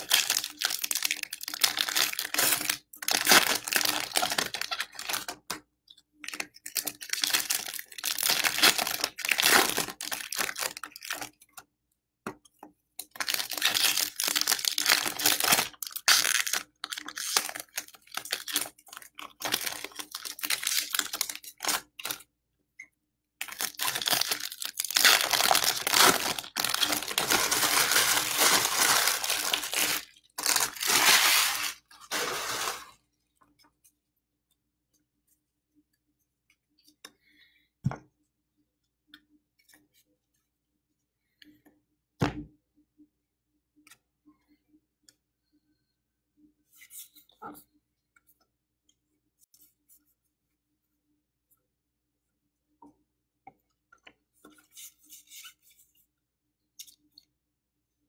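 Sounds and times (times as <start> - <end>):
wrappers torn open and crinkled: 0.0 - 5.4, 6.3 - 11.3, 13.2 - 22.2, 23.4 - 32.9.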